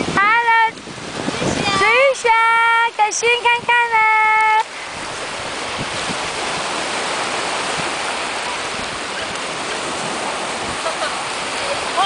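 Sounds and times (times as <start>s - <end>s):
waves breaking on beach: 0.0s - 12.0s.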